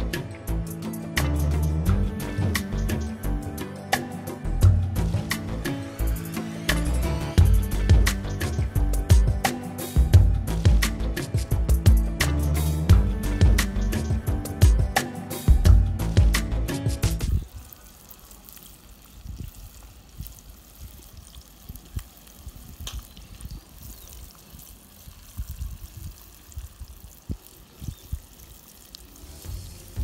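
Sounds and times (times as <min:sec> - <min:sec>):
music: 0:00.0 - 0:17.4, 0:29.1 - 0:30.0
fish sizzling in a skillet: 0:02.7 - 0:30.0
wind buffeting microphone: 0:19.2 - 0:28.4.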